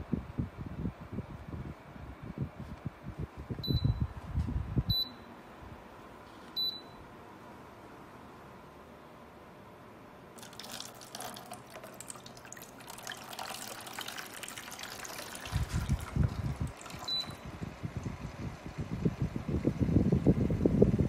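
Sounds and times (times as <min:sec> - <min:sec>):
wind buffeting microphone: 0:00.0 - 0:04.9, 0:15.5 - 0:21.0
water pouring and splashing: 0:10.4 - 0:17.2.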